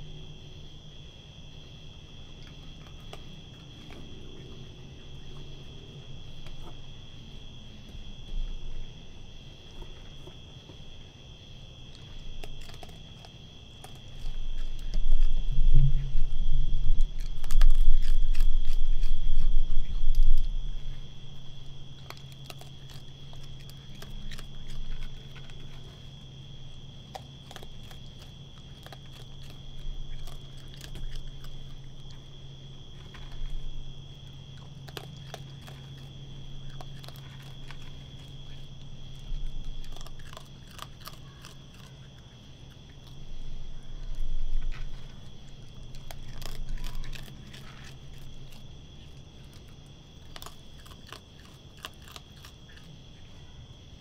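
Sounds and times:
raccoon crunching kibble: 0.0s - 54.0s
high-pitched hum: 14.4s - 21.9s
loud low rumble: 14.8s - 21.6s.

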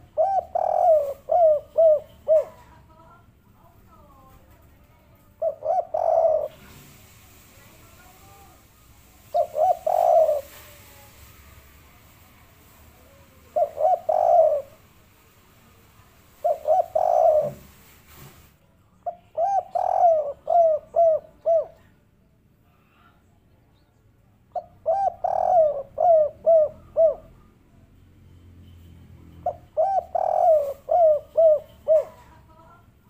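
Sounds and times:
dove cooing: 0.0s - 2.8s, 5.4s - 7.0s, 9.2s - 10.9s, 13.4s - 14.9s, 16.4s - 17.9s, 19.1s - 21.9s, 24.5s - 27.5s, 29.4s - 32.5s.

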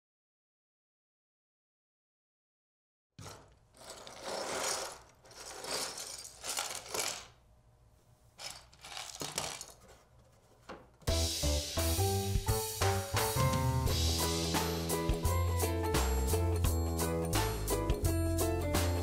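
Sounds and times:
plastic bricks clattering on table: 3.2s - 7.4s, 8.4s - 10.1s
plastic bricks rattling in box: 3.2s - 7.4s, 8.4s - 10.0s
music with a beat: 11.1s - 19.0s.

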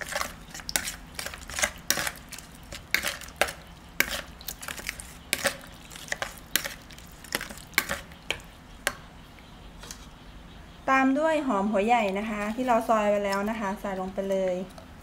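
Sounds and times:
spoon scraping ceramic bowl: 0.0s - 8.4s
spoon stirring wet dressing: 0.0s - 10.0s, 11.9s - 15.0s.

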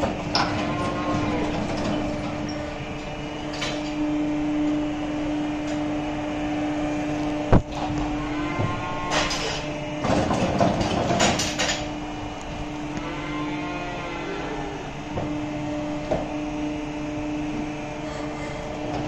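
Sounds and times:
cattle feeding at metal barrier: 0.0s - 3.9s
feeding machine humming: 0.0s - 19.0s.

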